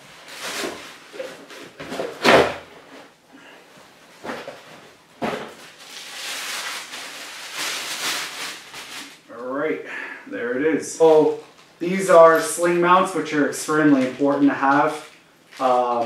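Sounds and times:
plastic bag rustling: 0:00.0 - 0:02.2, 0:04.0 - 0:09.3, 0:11.0 - 0:16.0.

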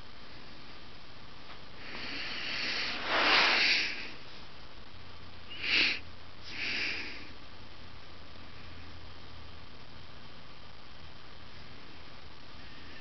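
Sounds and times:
person breathing close: 0:01.8 - 0:04.4, 0:05.5 - 0:07.4, 0:12.6 - 0:13.0.

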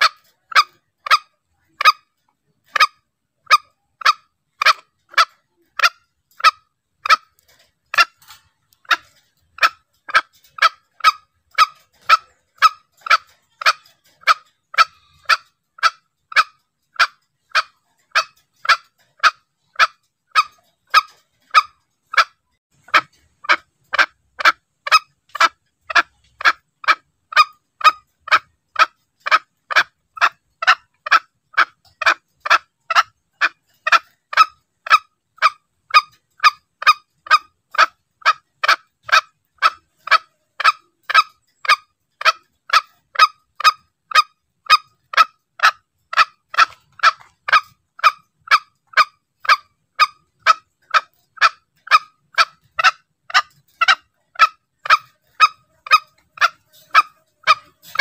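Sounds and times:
junglefowl calls: 0:00.0 - 0:58.0.

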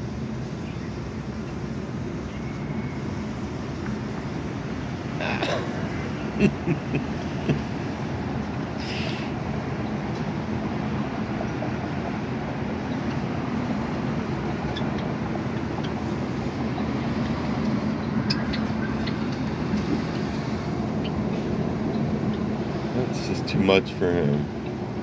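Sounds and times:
background rumble and hiss: 0:00.0 - 0:25.0
faint high bird chirps: 0:00.6 - 0:01.6, 0:02.2 - 0:03.6.

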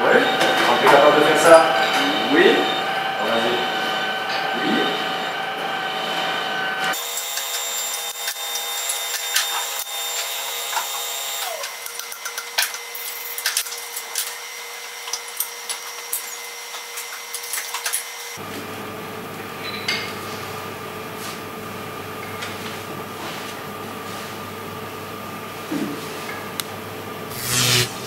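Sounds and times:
lower machine hum: 0:00.0 - 0:07.0
lathe machine hum: 0:00.0 - 0:13.4.

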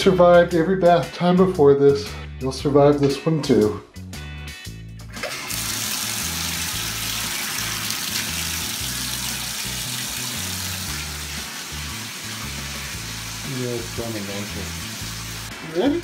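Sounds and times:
water pouring into bathtub: 0:05.2 - 0:16.0.

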